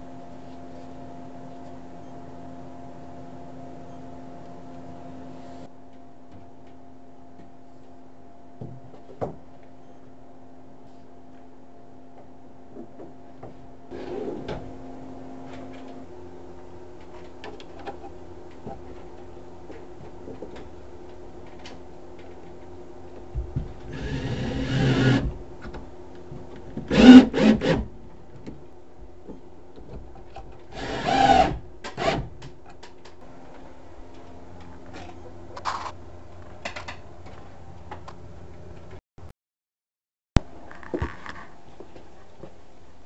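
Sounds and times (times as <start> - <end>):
steady low hum: 0.0 - 39.0
cordless drill driving screws: 26.9 - 27.8, 30.7 - 32.2.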